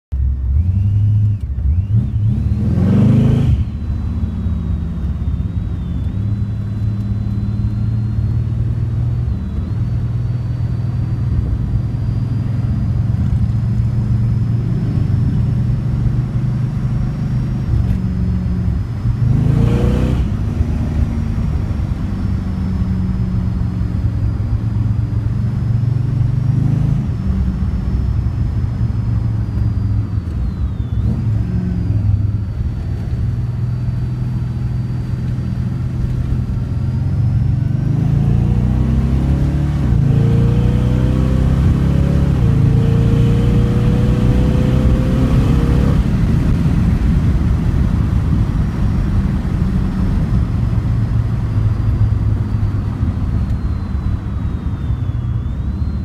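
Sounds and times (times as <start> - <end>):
car engine accelerating: 0.1 - 56.0.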